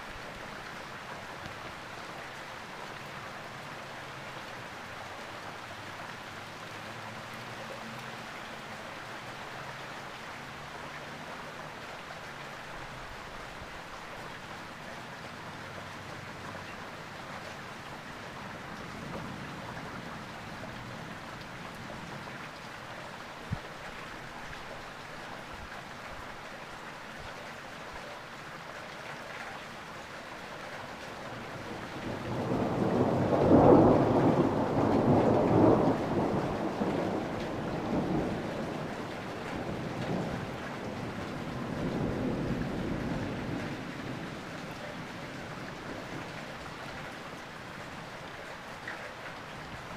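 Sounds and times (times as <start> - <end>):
steady rain: 0.0 - 49.9
thunder rumbling: 31.6 - 46.3.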